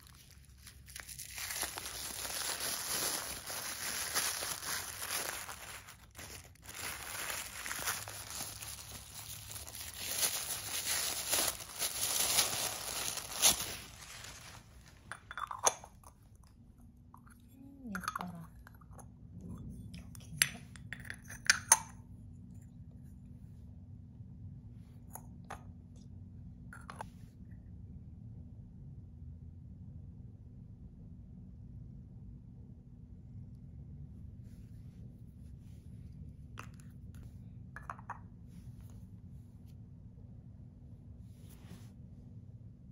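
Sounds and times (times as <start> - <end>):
tissue paper rustling: 0.0 - 15.0.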